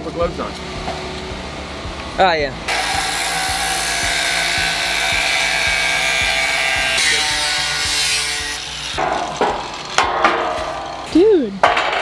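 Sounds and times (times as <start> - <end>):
angle grinder cutting steel: 2.7 - 10.0.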